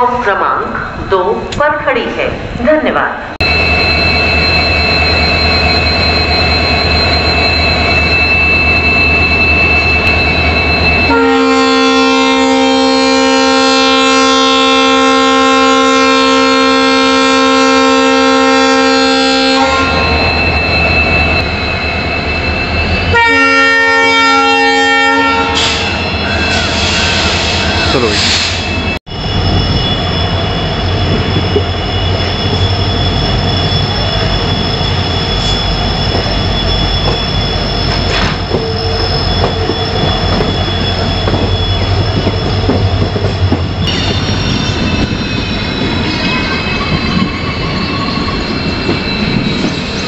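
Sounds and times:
diesel locomotive engine rumble: 0.0s - 50.0s
air horn blast: 11.1s - 20.1s, 23.1s - 25.9s.

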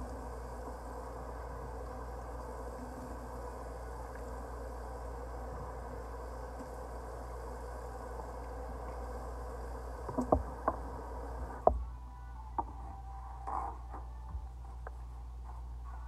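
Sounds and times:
tap shutting off with knock: 10.0s - 10.9s.

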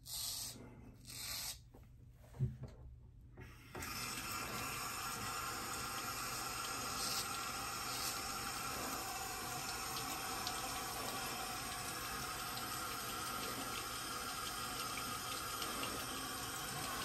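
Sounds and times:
running tap hissing: 3.7s - 17.0s.

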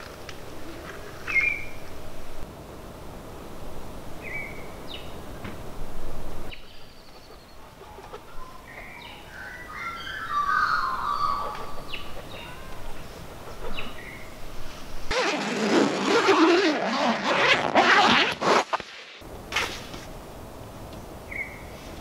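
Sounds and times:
bird warbling call: 6.6s - 12.6s.

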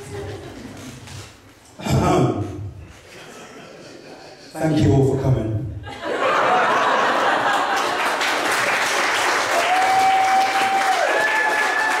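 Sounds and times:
audience applauding and cheering: 7.3s - 12.0s.

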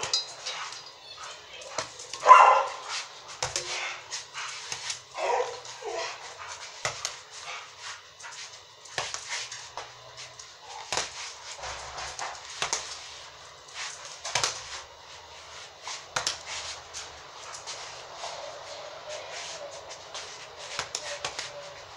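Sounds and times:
boxing gloves hitting ball: 10.8s - 11.3s.

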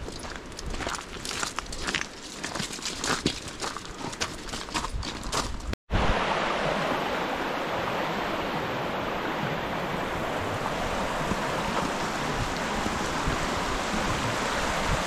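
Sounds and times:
footsteps: 0.0s - 5.8s
water flowing: 5.9s - 15.0s.

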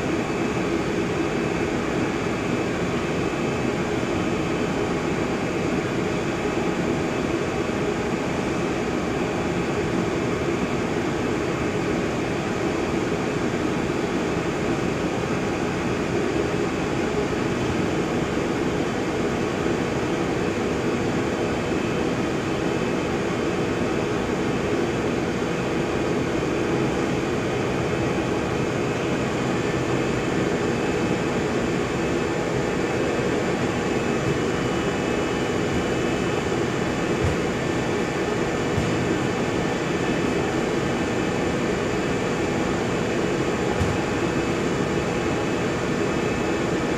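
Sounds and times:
faint high whine: 26.2s - 46.9s
film machine running: 27.9s - 46.9s.

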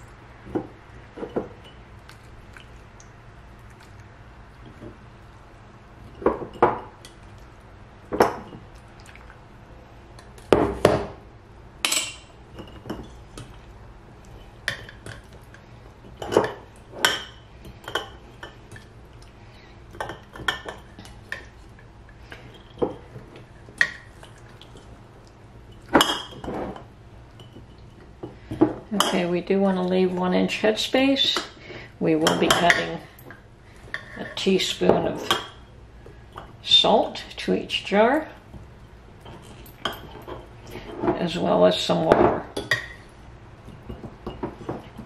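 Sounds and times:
glass jars and bowl clinking: 11.8s - 13.4s, 25.7s - 29.3s, 39.2s - 41.3s, 42.1s - 45.0s.

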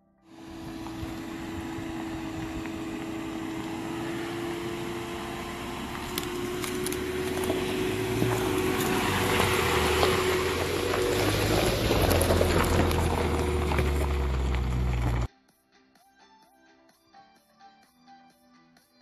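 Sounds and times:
car engine hum: 0.3s - 15.3s
tyres crunching on gravel: 0.4s - 15.3s.

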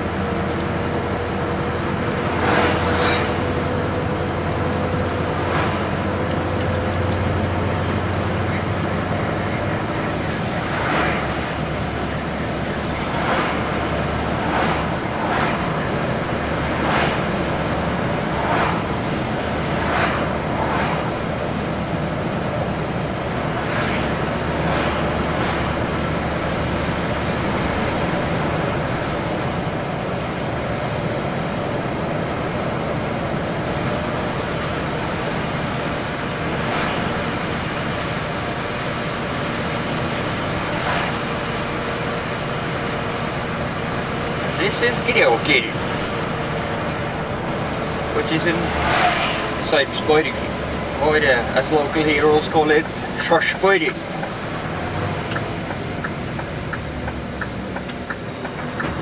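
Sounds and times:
vehicle road and engine noise: 0.0s - 59.0s
short whooshes: 48.7s - 49.6s.

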